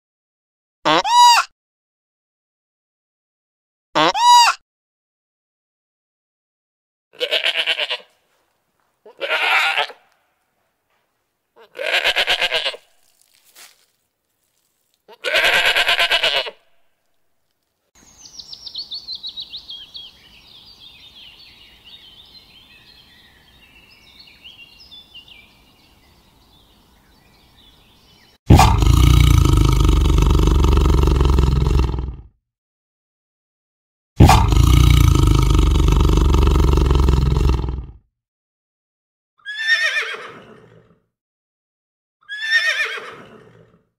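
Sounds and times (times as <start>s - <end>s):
goat bleating: 0.9s - 1.2s, 4.0s - 4.4s, 7.2s - 8.2s, 9.0s - 10.2s, 11.6s - 12.8s, 15.1s - 16.6s
big cat roaring: 28.5s - 32.3s, 34.2s - 38.0s.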